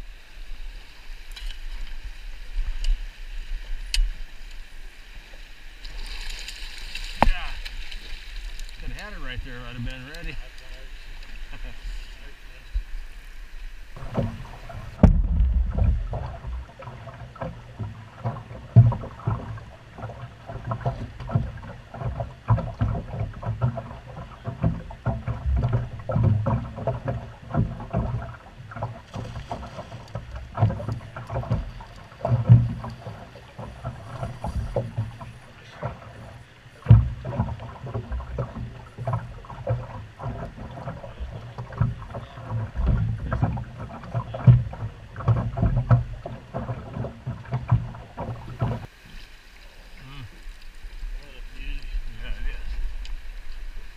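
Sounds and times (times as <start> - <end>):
water slapping against boat hull: 5.8 - 13.1, 13.7 - 49.3
knocks and thumps in boat: 6.9 - 11.8, 13.8 - 48.9.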